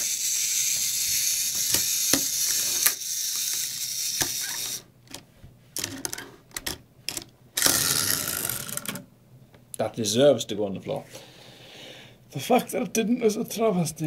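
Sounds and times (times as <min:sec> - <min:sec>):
toy gear mechanism whirring: 0:00.0 - 0:04.9, 0:07.6 - 0:09.0.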